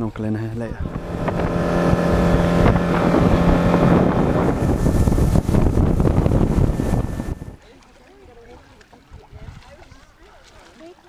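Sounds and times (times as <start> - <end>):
wind on microphone: 0.6 - 7.6, 9.1 - 9.8
outboard motor running: 0.6 - 9.0
boat wake rushing: 0.6 - 11.0.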